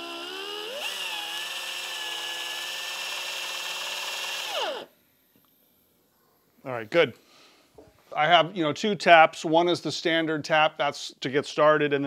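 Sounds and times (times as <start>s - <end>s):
air drill whining: 0.0s - 4.9s.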